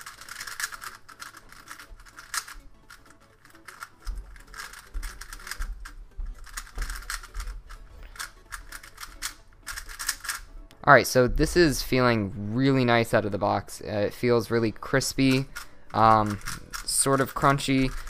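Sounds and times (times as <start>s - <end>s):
plastic puzzle cube clicking: 0.0s - 10.5s, 15.3s - 18.0s.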